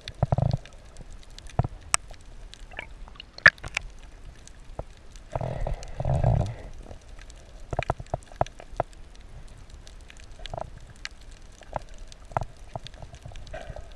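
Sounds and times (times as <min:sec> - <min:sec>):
underwater clicks and hollow pops: 0:00.0 - 0:04.1, 0:07.2 - 0:09.0, 0:09.9 - 0:13.9
underwater rush of water: 0:00.0 - 0:13.9.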